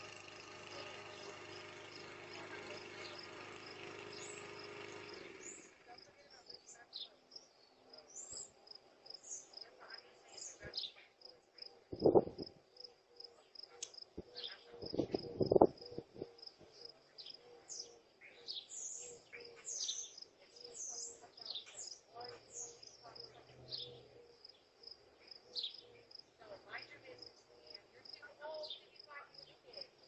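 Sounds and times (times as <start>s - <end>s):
birds chirping: 0.0s - 30.0s
crickets chirping: 7.3s - 18.1s.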